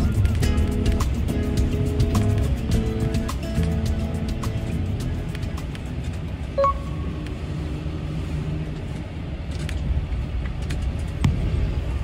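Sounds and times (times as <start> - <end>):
bus engine and road rumble: 0.0 - 12.0
short electronic beep: 6.5 - 7.1.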